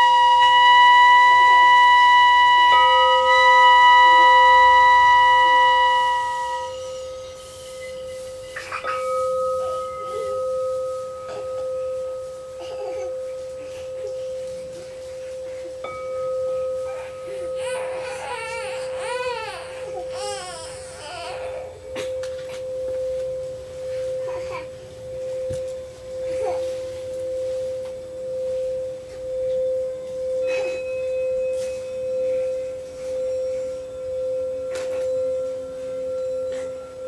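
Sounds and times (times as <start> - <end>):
flute sliding phrase: 0.0 - 7.8
crystal singing bowl ringing: 0.0 - 37.0
metal singing bowl ringing: 0.0 - 37.0.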